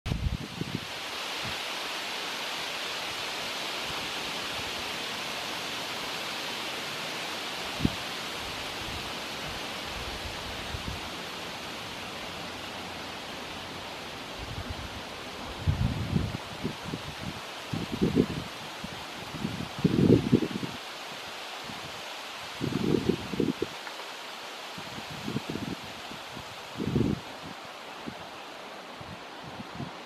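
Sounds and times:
steady outdoor hiss: 0.1s - 30.0s.

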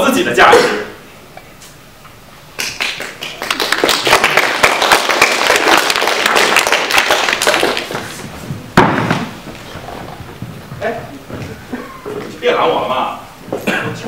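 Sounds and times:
audience applause: 2.6s - 8.2s.

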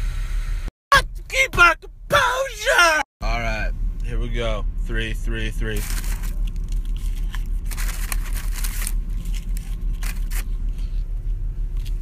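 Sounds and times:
low hum inside a car: 0.0s - 12.0s
rustling: 5.8s - 11.1s.

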